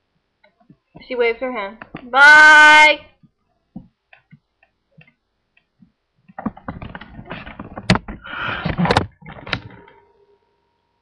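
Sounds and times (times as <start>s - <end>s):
knocks and clunks: 5.8s - 10.0s.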